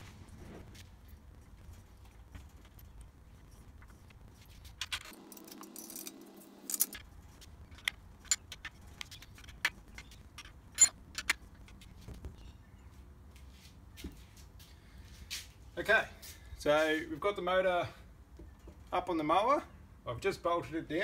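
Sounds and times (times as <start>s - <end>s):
metal clinks of nuts and bolts: 4.8s - 7.0s, 7.7s - 11.4s.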